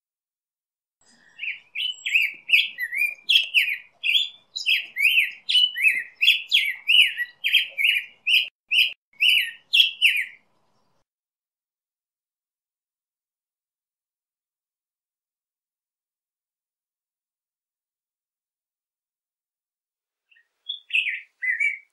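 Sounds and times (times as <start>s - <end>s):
bird singing whistled notes: 1.4s - 11.0s, 20.3s - 21.9s.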